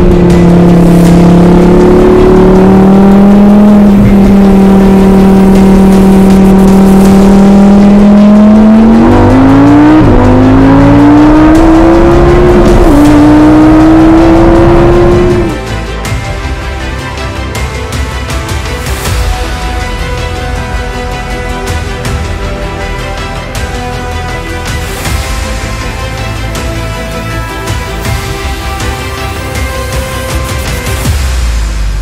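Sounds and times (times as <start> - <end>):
car engine revving: 0.0 - 15.6.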